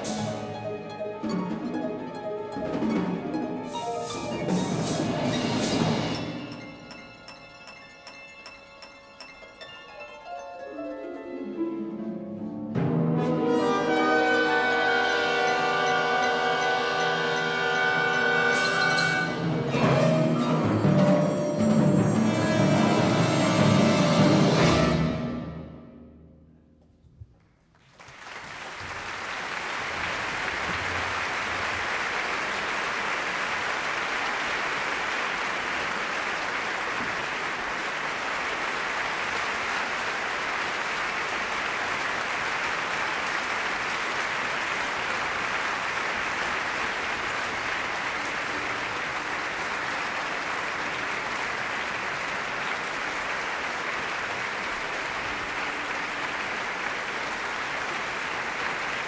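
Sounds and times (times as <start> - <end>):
audience applause: 27.7 - 59.0.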